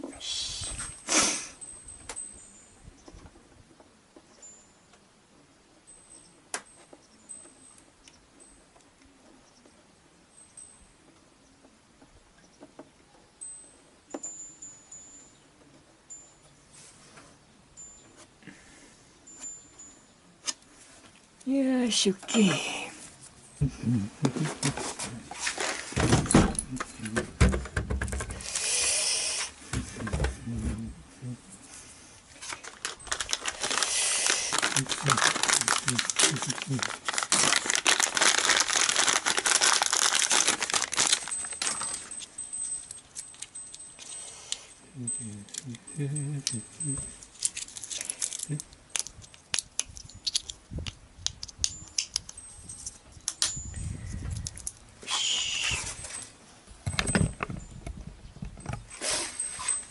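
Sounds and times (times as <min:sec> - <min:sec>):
scraping rustle: 0:24.3 - 0:27.1, 0:58.6 - 0:59.9
hissing rustle: 0:31.6 - 0:38.1, 0:55.0 - 0:56.4
batteries clicking into holder: 0:47.4 - 0:53.5.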